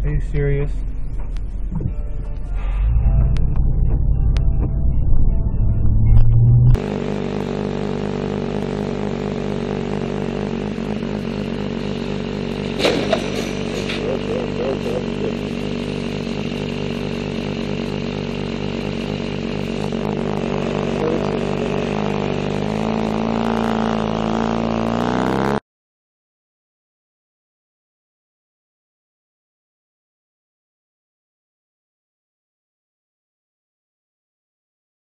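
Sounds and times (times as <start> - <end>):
motorcycle engine running: 0.0 - 25.6.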